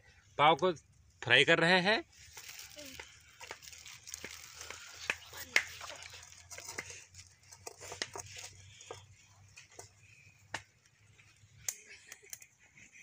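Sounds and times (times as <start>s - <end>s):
oil popping and crackling: 2.2s - 10.8s.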